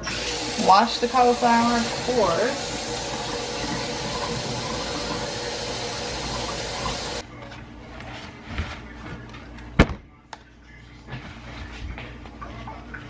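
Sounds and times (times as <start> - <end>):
tap water running into sink: 0.0 - 7.2.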